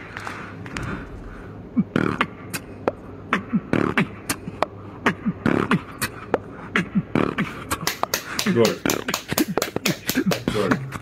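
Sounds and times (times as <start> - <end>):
person beatboxing into a microphone: 3.3 - 10.8.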